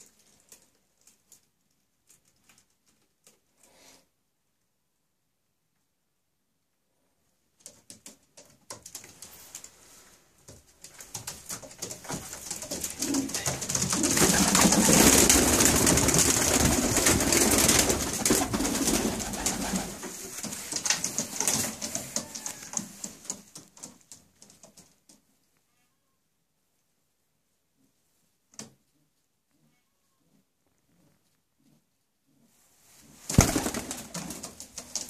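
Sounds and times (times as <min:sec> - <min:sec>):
pigeons flapping wings: 0:10.5 - 0:24.8, 0:33.3 - 0:35.0.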